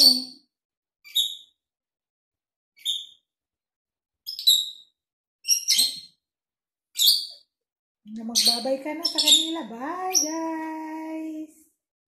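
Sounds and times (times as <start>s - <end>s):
parrot chirping: 0.0s - 0.4s, 2.8s - 3.2s, 4.2s - 6.2s, 6.9s - 7.4s, 8.2s - 10.7s.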